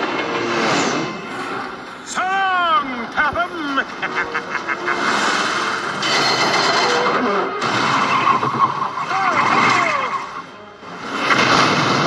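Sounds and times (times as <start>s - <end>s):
cartoon vehicle-like noise: 0.0s - 12.0s.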